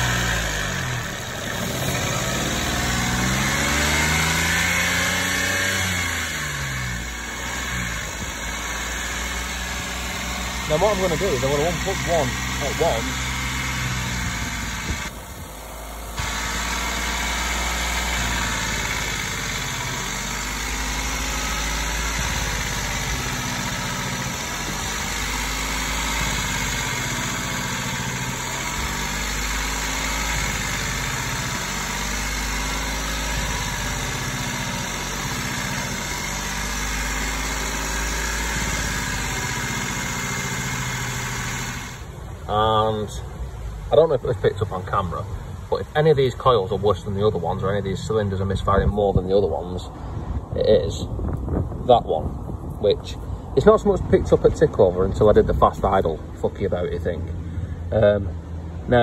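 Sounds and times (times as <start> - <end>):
car engine fast idle: 0.0 - 43.1.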